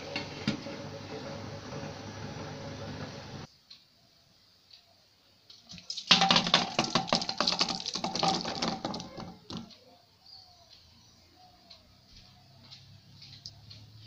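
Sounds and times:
small hard objects rattling: 5.7s - 9.7s
faint bird chirps: 9.8s - 14.0s.

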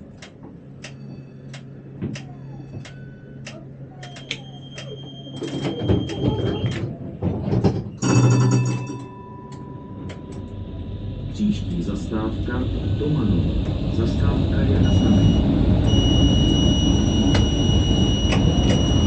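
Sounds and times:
loud ringing signal: 8.0s - 19.0s
electronic beep tones: 14.0s - 19.0s.

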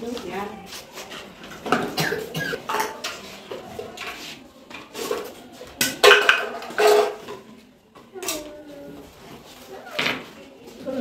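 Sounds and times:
metal cans and plastic bottles clattering: 1.5s - 4.2s, 4.8s - 7.6s.

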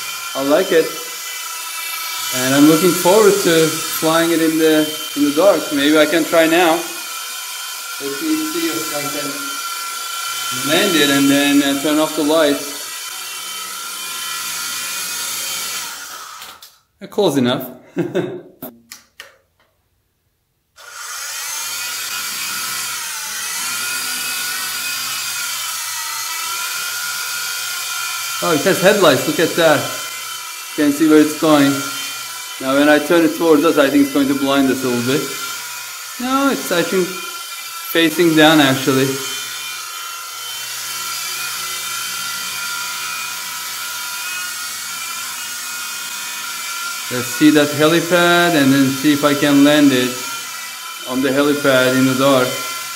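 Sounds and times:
toy helicopter motor whine: 0.0s - 16.7s, 20.8s - 52.9s.

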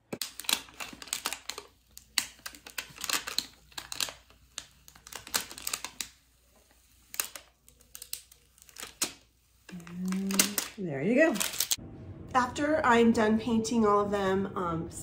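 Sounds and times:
tape peeling with crackling clicks: 0.1s - 11.8s.

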